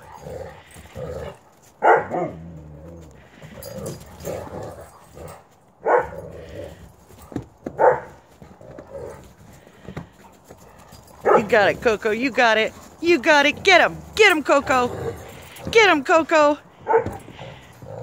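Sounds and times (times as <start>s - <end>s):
dogs barking: 1.8s - 2.4s, 3.8s - 6.3s, 7.3s - 9.3s, 10.6s - 11.7s, 16.8s - 17.7s.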